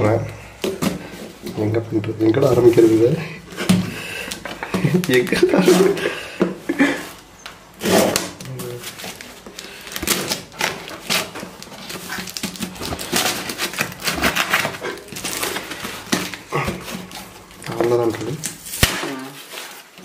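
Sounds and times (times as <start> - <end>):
packing tape being slit and ripped: 7.8 - 20.0.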